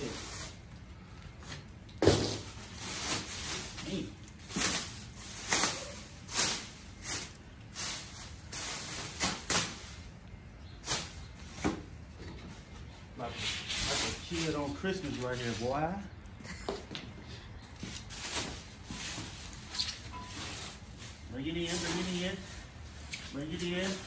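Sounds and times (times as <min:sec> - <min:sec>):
plastic wrapping crinkling: 0:00.0 - 0:10.2, 0:17.9 - 0:24.0.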